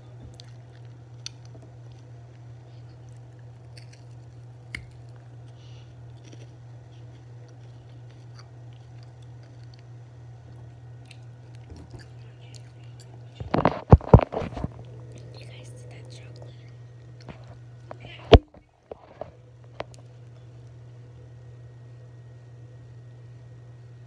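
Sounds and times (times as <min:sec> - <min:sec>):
low hum: 0:00.0 - 0:24.0
chewing snack: 0:00.3 - 0:18.1.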